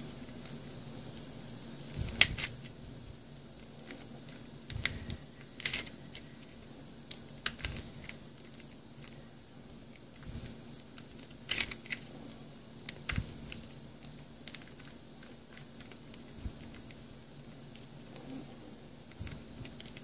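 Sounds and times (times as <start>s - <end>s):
plastic puzzle clicking: 3.8s - 6.5s, 7.1s - 9.2s, 10.9s - 12.1s, 12.8s - 17.0s.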